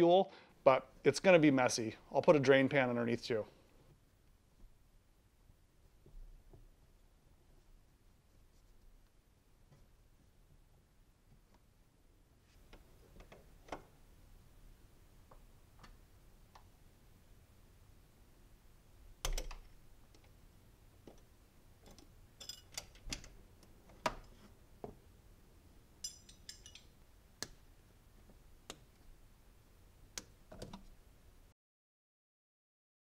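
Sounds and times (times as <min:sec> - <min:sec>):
rattling metal clinks: 0:22.4 - 0:22.8, 0:26.0 - 0:27.0.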